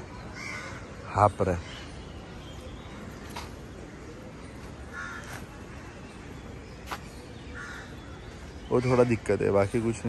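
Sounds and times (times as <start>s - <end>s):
outdoor background hiss: 0.0s - 10.0s
bird cawing: 0.2s - 2.0s, 2.9s - 6.1s, 7.5s - 9.3s.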